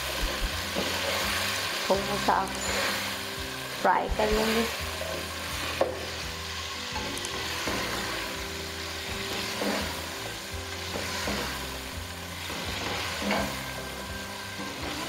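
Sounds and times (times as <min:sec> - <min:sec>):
vegetables sizzling in oil: 0:00.0 - 0:15.0
spatula stirring: 0:09.1 - 0:15.0.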